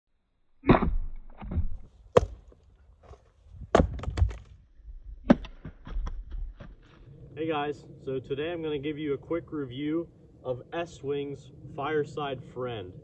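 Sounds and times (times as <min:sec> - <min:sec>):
axe chopping firewood: 0:00.6 - 0:04.5, 0:05.3 - 0:06.9
wood cracking and splitting: 0:00.7 - 0:04.6.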